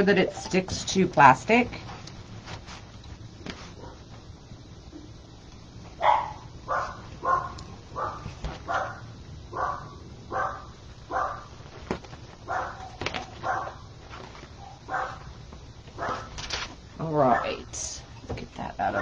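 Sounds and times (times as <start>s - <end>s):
dog barking: 6.0s - 11.5s, 12.5s - 13.9s, 14.6s - 15.3s, 16.0s - 16.3s, 17.3s - 17.6s.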